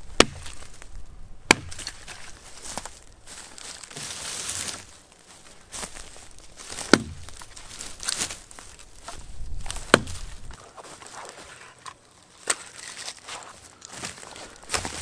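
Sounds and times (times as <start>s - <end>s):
footsteps on dry leaves: 0.0s - 15.0s
axe chopping branch: 0.1s - 0.8s, 1.5s - 2.9s, 6.6s - 8.4s, 9.0s - 10.6s, 14.0s - 15.0s.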